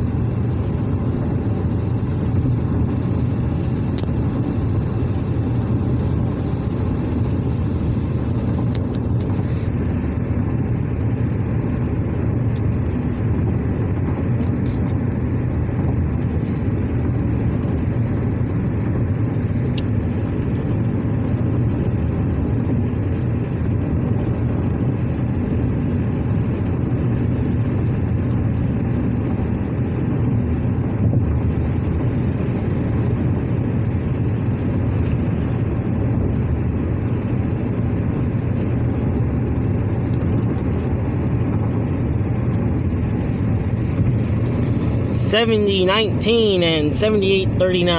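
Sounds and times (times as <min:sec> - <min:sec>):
car cabin road noise: 0:00.0 - 0:47.9.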